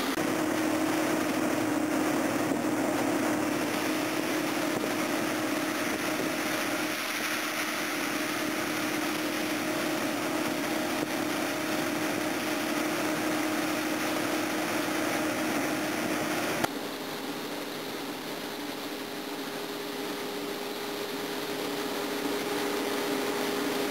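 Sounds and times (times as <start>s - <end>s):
grain pouring from auger: 0.0s - 16.7s
combine harvester running: 0.0s - 23.9s.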